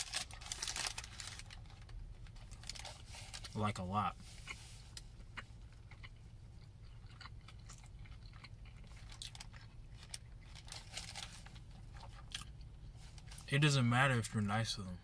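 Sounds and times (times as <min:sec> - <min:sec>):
person chewing food: 0:04.2 - 0:13.4.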